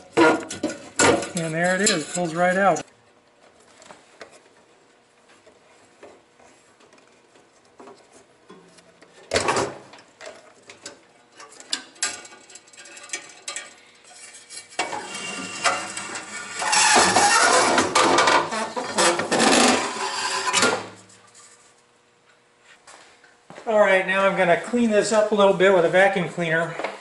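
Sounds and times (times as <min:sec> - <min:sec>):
small metal clicks and clatter: 0:10.7 - 0:14.7.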